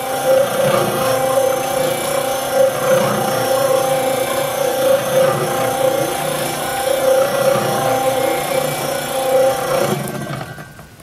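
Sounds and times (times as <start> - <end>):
cement mixer running: 0.0 - 11.0.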